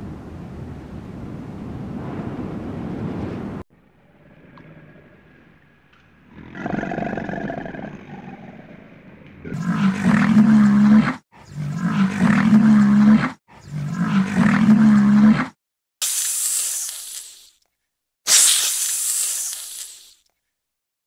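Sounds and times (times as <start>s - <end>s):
deep animal call: 4.0s - 15.6s
snake hissing: 16.0s - 17.6s, 18.3s - 20.2s.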